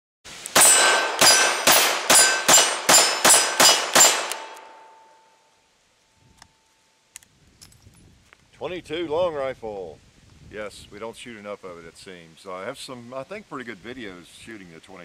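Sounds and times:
steel targets ringing: 0:00.5 - 0:05.5.

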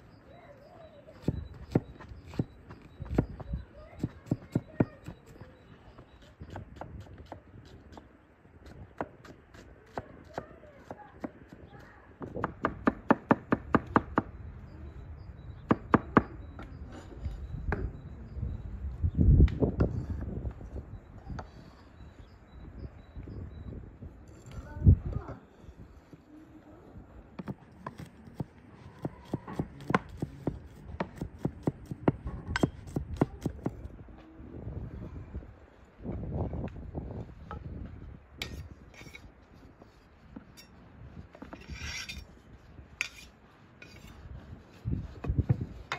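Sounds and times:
knife chopping on wooden board: 0:29.0 - 0:33.8.

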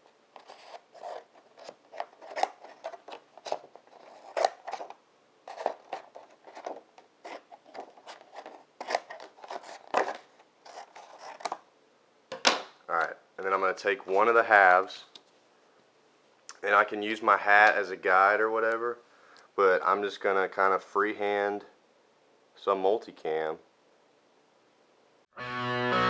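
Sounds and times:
scissors cutting poster board: 0:00.4 - 0:04.9.

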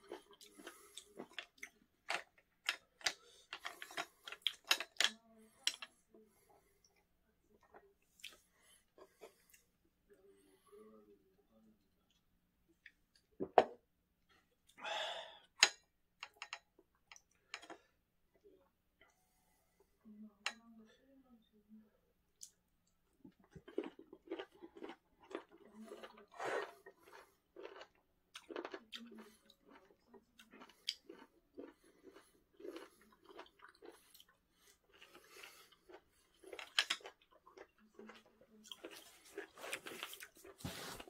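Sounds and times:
person chewing: 0:00.0 - 0:05.8, 0:07.6 - 0:09.7, 0:23.3 - 0:41.0.

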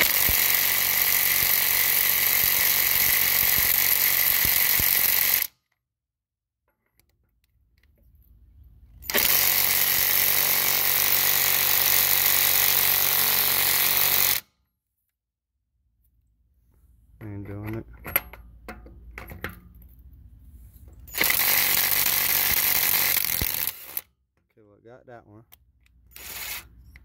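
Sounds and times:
impact driver hammering: 0:00.0 - 0:05.5, 0:21.2 - 0:24.0.

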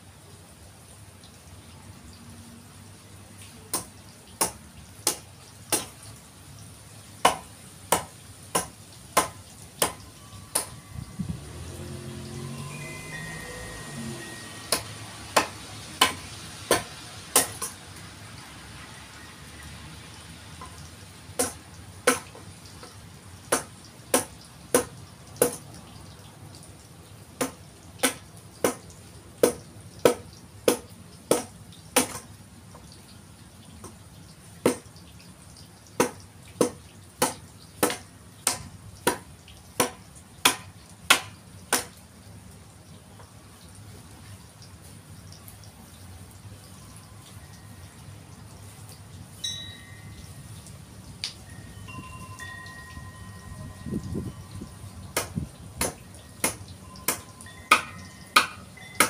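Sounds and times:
steady rain hiss: 0:00.0 - 0:59.0
hand tool chopping log: 0:07.2 - 0:10.8, 0:14.7 - 0:17.8, 0:39.8 - 0:41.9, 0:55.2 - 0:58.6.

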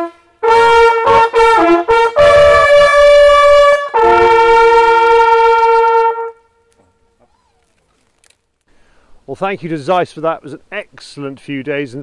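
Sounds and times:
hunting horns fanfare: 0:00.0 - 0:06.8.

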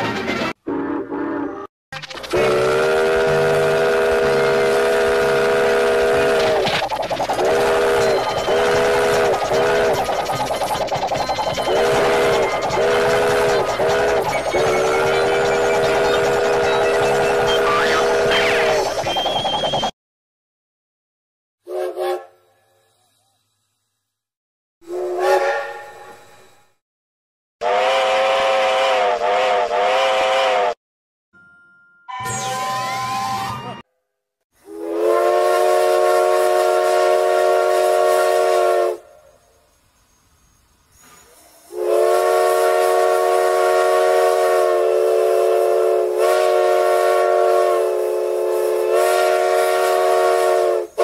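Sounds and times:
train chuffing and clatter: 0:02.1 - 0:19.9
steam locomotive whistle: 0:02.3 - 0:06.7, 0:07.3 - 0:10.4, 0:11.5 - 0:19.8, 0:21.6 - 0:22.5, 0:24.8 - 0:26.7, 0:27.6 - 0:30.8, 0:34.6 - 0:39.6, 0:41.2 - 0:51.0.

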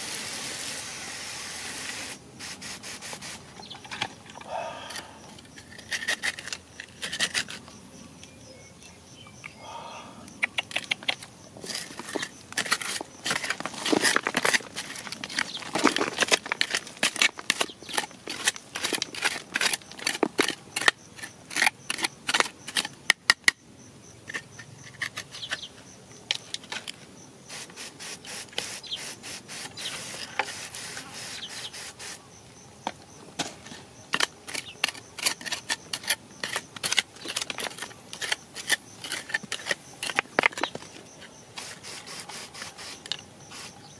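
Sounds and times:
hand scraping through damp soil: 0:11.6 - 0:20.2.

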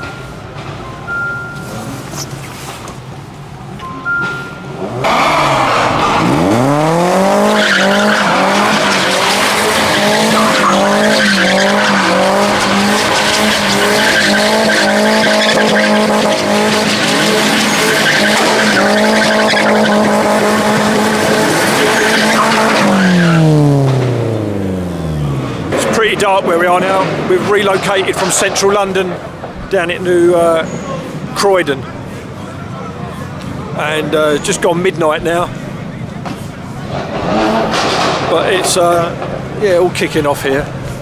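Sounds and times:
tyres squealing on tarmac: 0:04.3 - 0:23.6, 0:25.8 - 0:41.0
car engine revving: 0:04.7 - 0:29.5, 0:35.2 - 0:41.0.

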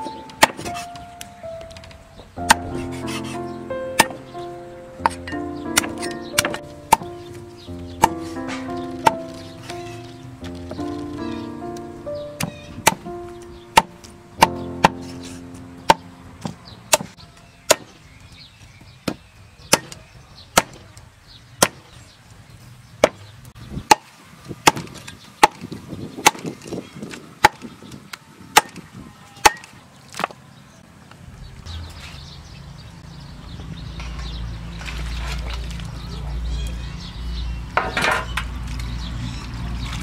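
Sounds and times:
cleaver chopping on wooden block: 0:00.4 - 0:00.8, 0:04.0 - 0:04.2, 0:05.0 - 0:07.1, 0:08.0 - 0:09.2, 0:12.4 - 0:13.0, 0:13.8 - 0:15.2, 0:15.9 - 0:18.0, 0:19.0 - 0:20.0, 0:20.6 - 0:20.9, 0:21.6 - 0:21.9, 0:23.0 - 0:23.2, 0:23.8 - 0:26.6, 0:27.4 - 0:27.7, 0:28.5 - 0:28.8, 0:29.4 - 0:30.4.

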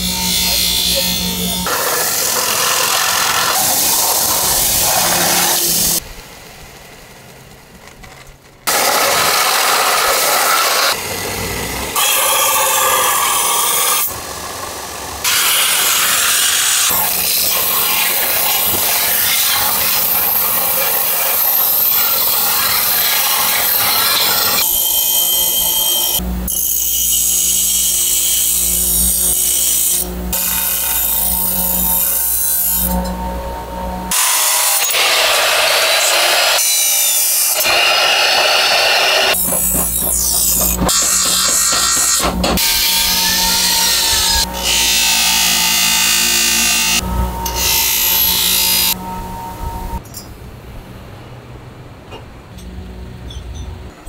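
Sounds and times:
belt grinder rasping on steel: 0:00.0 - 0:06.0, 0:34.1 - 0:49.0.

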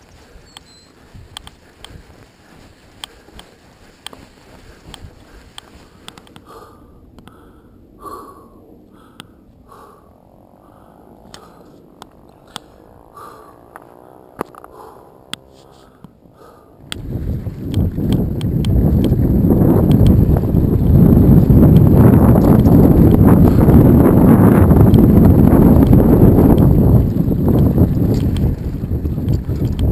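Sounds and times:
bike clicks and rattles: 0:00.0 - 0:06.7, 0:11.2 - 0:29.9
wind rushing over microphone: 0:00.0 - 0:14.1, 0:16.2 - 0:29.9
person breathing hard: 0:00.1 - 0:16.9, 0:23.3 - 0:23.8.

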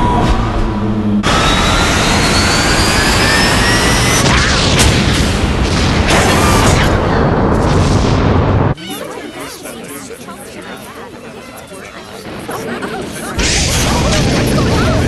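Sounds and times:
rising whine: 0:00.0 - 0:06.1
rocket engine roar: 0:00.0 - 0:08.8, 0:12.3 - 0:15.0.

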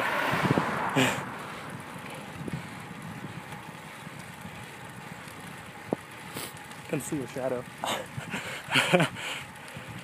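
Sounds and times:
wind rushing over microphone: 0:00.0 - 0:06.2.

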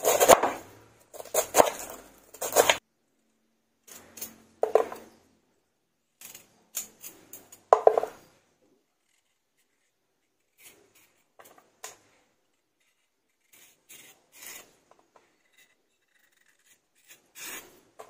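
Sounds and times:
knife chopping cabbage on board: 0:00.0 - 0:00.6, 0:01.2 - 0:02.8
knife cutting raw carrot: 0:00.0 - 0:02.8.

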